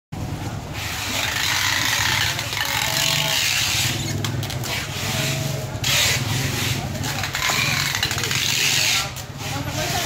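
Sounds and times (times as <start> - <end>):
market background hiss: 0.2 - 10.0.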